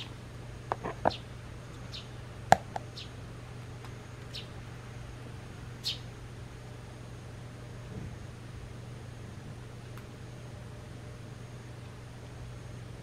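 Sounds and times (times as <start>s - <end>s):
low steady hum: 0.0s - 13.0s
bird chirping: 1.9s - 2.2s, 2.9s - 3.2s, 4.3s - 4.6s, 5.8s - 6.1s.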